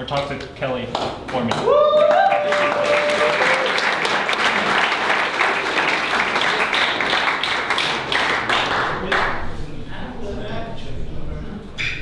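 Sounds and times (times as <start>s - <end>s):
audience applauding: 1.4s - 9.3s
person cheering: 1.6s - 3.8s.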